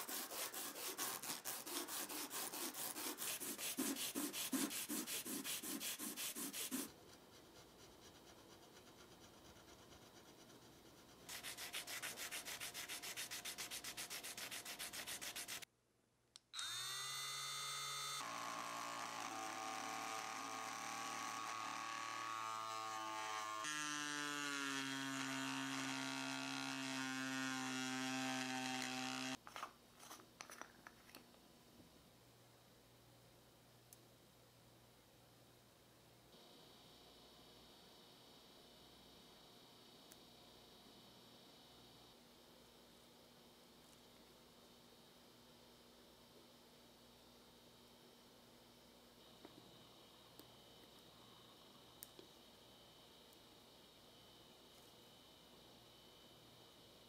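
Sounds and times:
plastic rubbed on sandpaper: 0.0 - 15.6.

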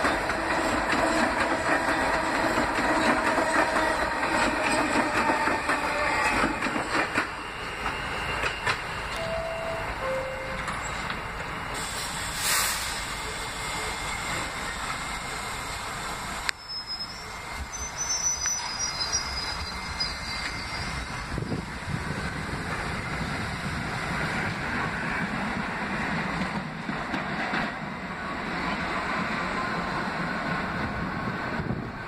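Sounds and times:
standing train rumble: 0.0 - 32.0
subway train rattling past: 0.0 - 32.0
high wheel squeal: 1.9 - 11.1, 11.7 - 21.8
air hiss: 11.7 - 16.5.

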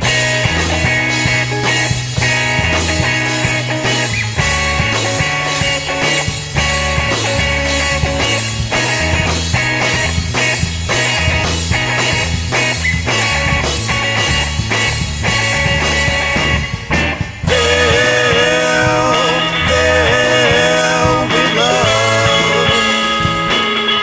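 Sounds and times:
instrumental psychedelic rock: 0.0 - 24.0.

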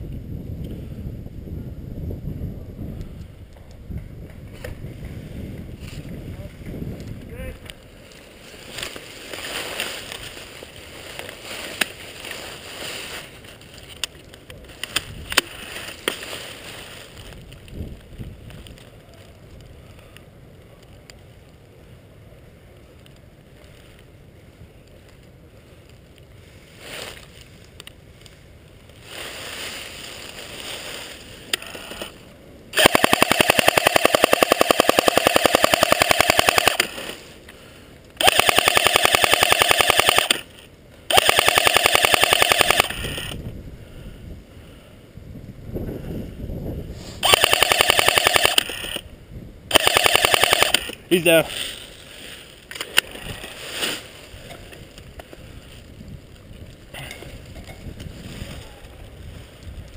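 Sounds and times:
rustling: 7.0 - 20.1, 23.0 - 43.4, 49.8 - 59.9
airsoft rifle full-auto burst: 32.7 - 37.2, 38.2 - 40.5, 41.1 - 43.4, 47.2 - 49.0, 49.7 - 51.4
sharp clicks: 32.8 - 37.2, 38.0 - 43.4, 47.2 - 49.1, 49.7 - 51.4.

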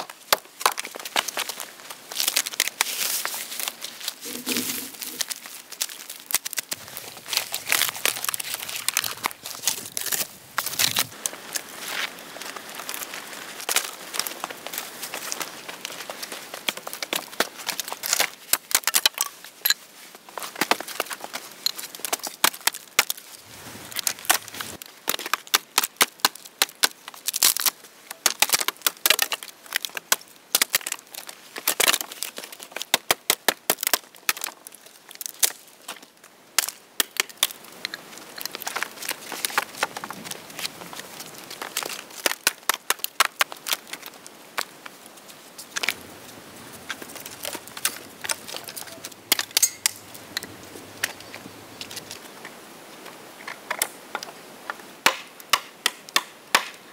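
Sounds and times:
dry branches snapping: 0.0 - 19.2, 23.8 - 35.6, 46.8 - 50.3
hatchet chopping wood: 55.0 - 56.8.

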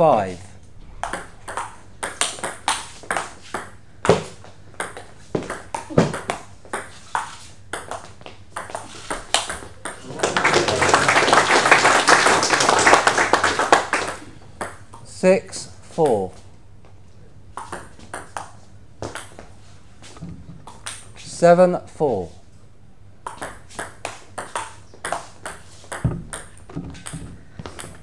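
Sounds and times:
spectators clapping: 10.0 - 14.3.

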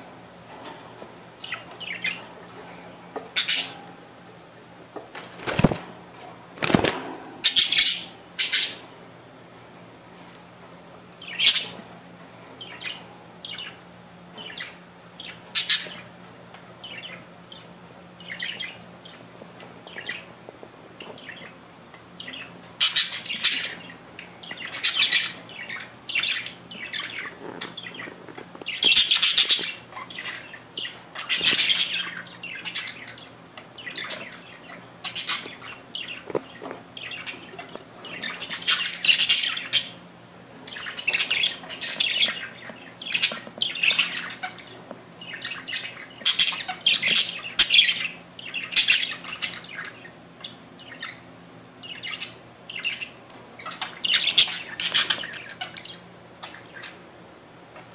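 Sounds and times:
budgerigars chirping and squawking: 1.4 - 3.9, 6.6 - 8.9, 11.2 - 11.9, 12.6 - 16.2, 16.8 - 20.3, 21.0 - 21.6, 22.2 - 57.1.

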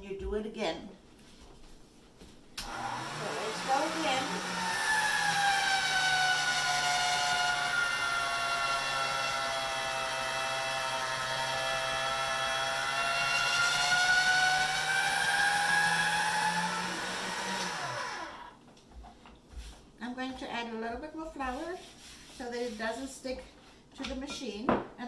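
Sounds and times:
pasta roller motor whining: 2.6 - 18.6.

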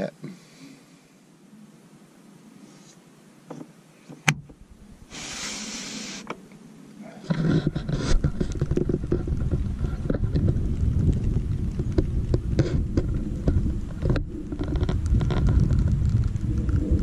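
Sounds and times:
hiss: 5.1 - 6.4
wind buffeting microphone: 7.3 - 17.0.

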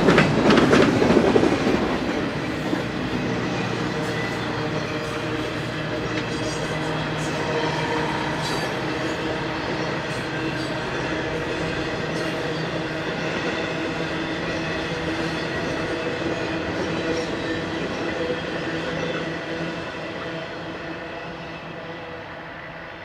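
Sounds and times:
freight train wheels on rails: 0.0 - 23.0.

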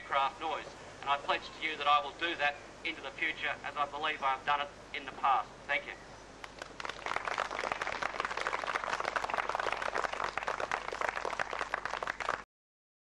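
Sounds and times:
crowd applauding: 6.4 - 12.5.

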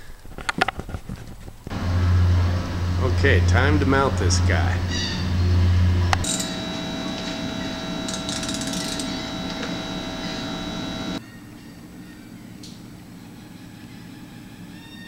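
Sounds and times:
power tool whining: 1.7 - 11.2
rapid clicking: 4.8 - 11.2.

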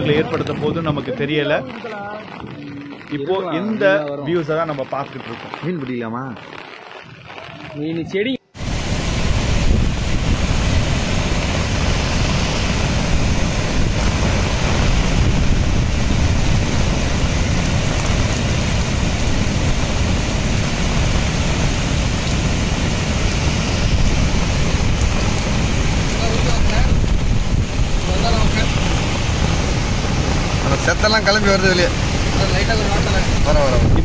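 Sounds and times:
wind buffeting microphone: 0.0 - 34.0
water rushing over a weir: 8.6 - 34.0.

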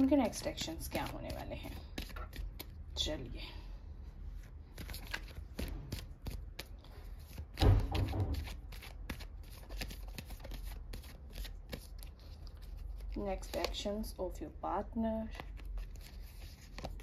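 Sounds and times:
cards being shuffled by hand: 0.2 - 3.0, 4.4 - 13.9, 15.2 - 17.0.

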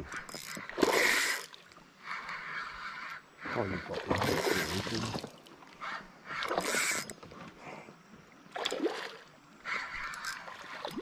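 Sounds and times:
fishing reel cranking: 0.1 - 1.5, 6.5 - 7.2, 9.9 - 10.5.

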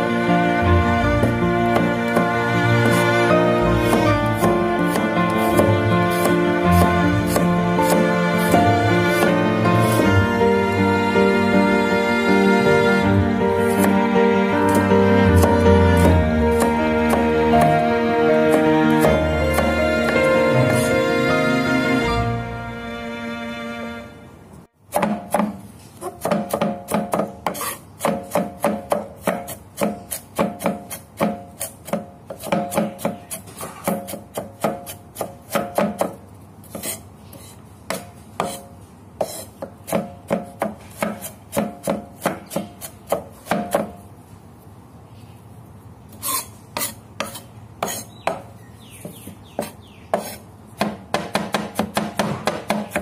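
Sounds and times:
knife chopping on wooden board: 1.2 - 3.2, 3.8 - 10.1, 13.6 - 14.0, 14.7 - 17.8, 18.5 - 21.0, 24.9 - 44.0, 46.2 - 53.0.

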